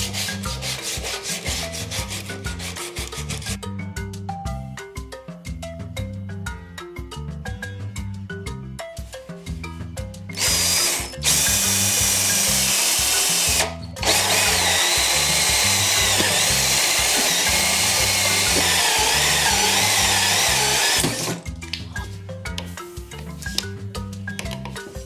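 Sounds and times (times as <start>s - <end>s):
marimba background music: 0.0s - 25.0s
drill hole saw cutting wood: 10.4s - 21.4s.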